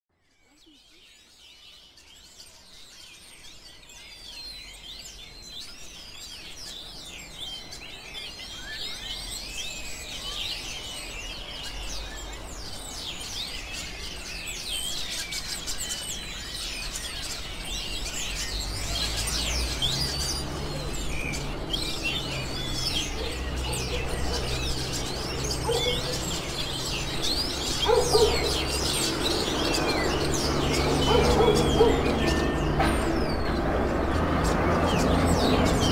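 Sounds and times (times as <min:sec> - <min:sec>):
parakeets chattering: 0:16.6 - 0:35.9.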